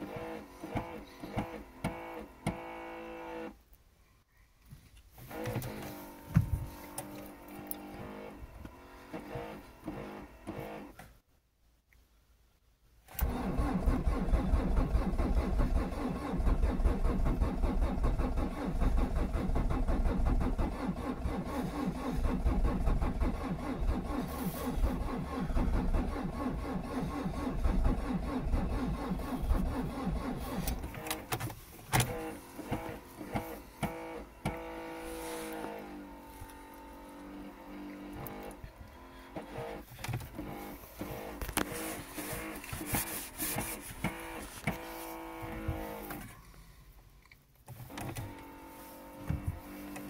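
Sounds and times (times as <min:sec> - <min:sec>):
starter motor cranking diesel engine: 0:13.2 - 0:36.7.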